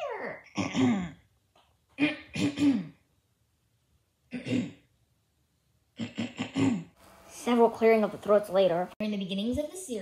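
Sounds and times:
woman clearing her throat: 0.4 - 1.2, 2.0 - 3.0, 4.3 - 4.9, 6.0 - 7.0.

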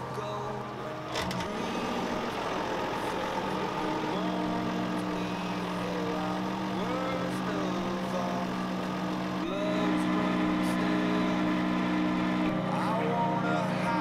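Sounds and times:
tractor diesel engine idling: 0.0 - 14.0.

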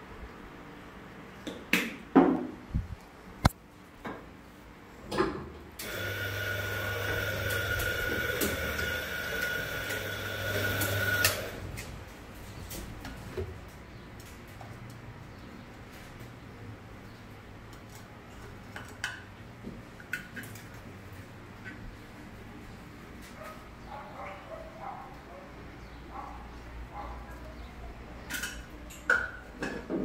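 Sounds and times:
electric coffee grinder: 5.8 - 11.7.

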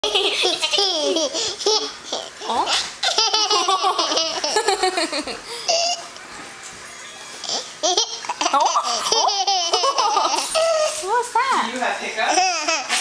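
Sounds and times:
toddler girl giggling: 0.0 - 6.2, 7.0 - 11.0.

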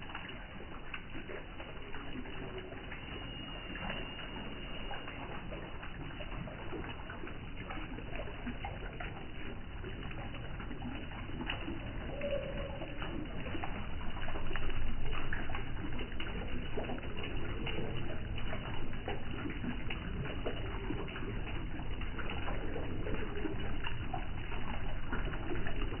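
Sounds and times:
water trickling: 0.0 - 26.0
doves cooing: 10.8 - 14.0.

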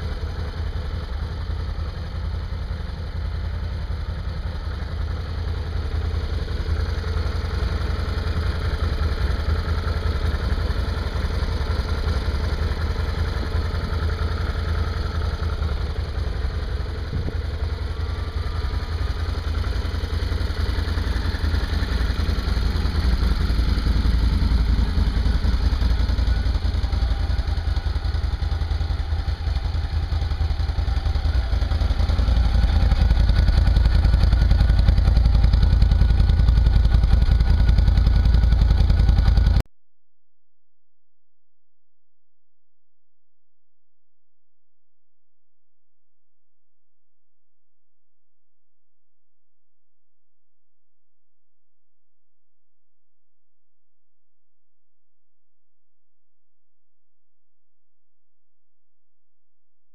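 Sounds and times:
atv engine idling: 0.0 - 39.6.

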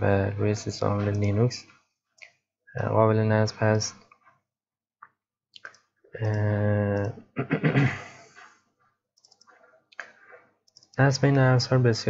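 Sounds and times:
computer mouse clicks: 5.6 - 7.2, 9.2 - 11.1.

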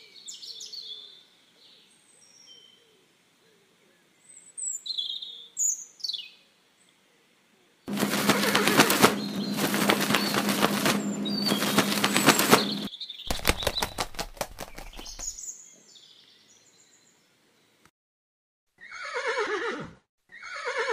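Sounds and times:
horses galloping: 7.9 - 15.4
birds chirping: 7.9 - 16.4
horse neighing: 18.8 - 20.9.

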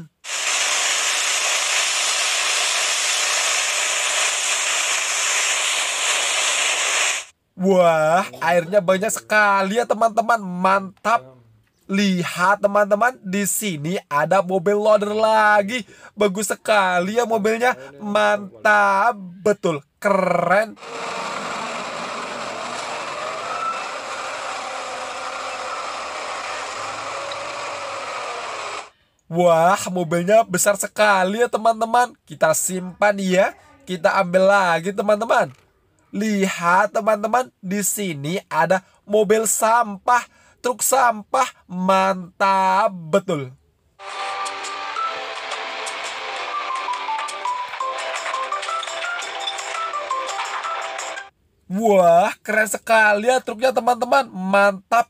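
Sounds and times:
hiss of water spray: 0.2 - 7.3
wheel loader diesel engine: 20.8 - 28.9.

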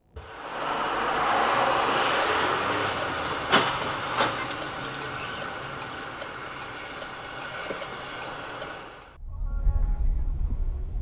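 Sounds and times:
sharp knocks: 1.4 - 6.0.

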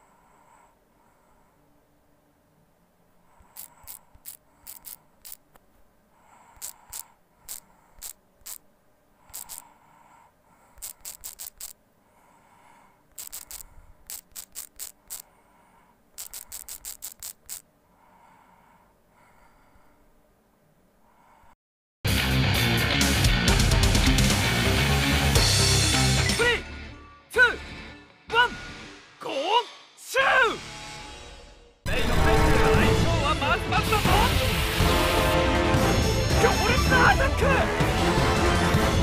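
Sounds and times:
phone keyboard typing clicks: 9.3 - 9.7, 10.8 - 11.8, 13.2 - 15.3, 16.2 - 17.6.

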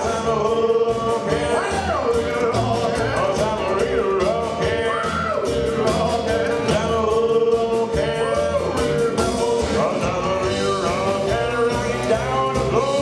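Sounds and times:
rock and roll band playing: 0.0 - 13.0.

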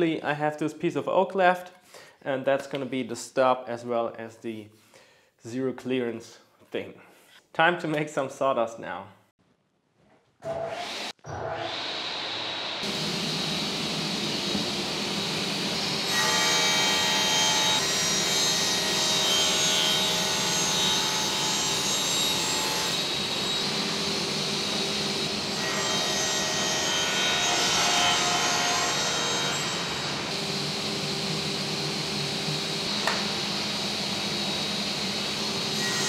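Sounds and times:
saw blade cutting plywood: 10.4 - 31.1
table saw humming: 10.6 - 36.0.

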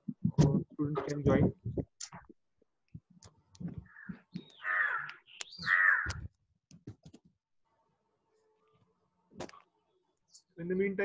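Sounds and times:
harsh bird calls: 3.8 - 6.3.

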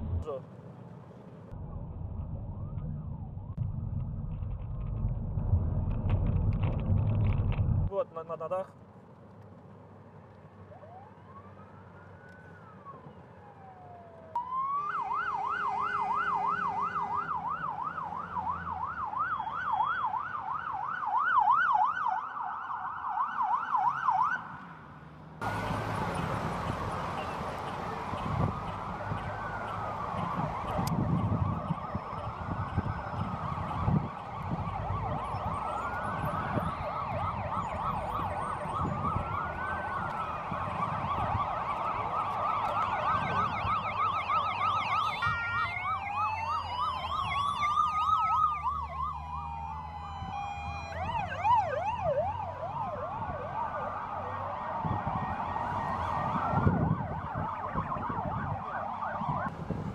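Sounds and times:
vehicle engine and road noise: 0.0 - 59.9
police siren wailing and yelping: 10.7 - 24.5, 25.5 - 59.5.

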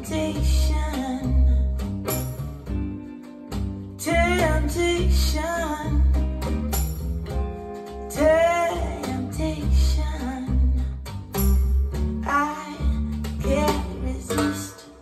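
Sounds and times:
woman singing: 0.0 - 1.9, 4.0 - 6.4, 8.0 - 11.1, 12.2 - 15.0
pop song over speakers: 0.0 - 2.4, 4.0 - 6.6, 7.4 - 15.0.

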